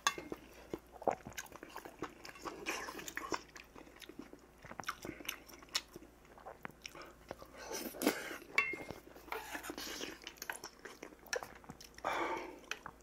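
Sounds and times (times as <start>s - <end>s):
man chewing with wet mouth sounds: 0.0s - 13.0s
spoon clinking on metal bowl: 8.6s - 8.9s.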